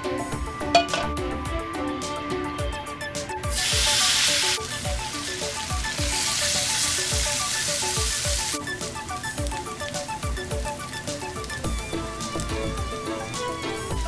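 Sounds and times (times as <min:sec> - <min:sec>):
background music with steady beat: 0:00.0 - 0:14.0
noodles sizzling in frying pan: 0:03.4 - 0:14.0.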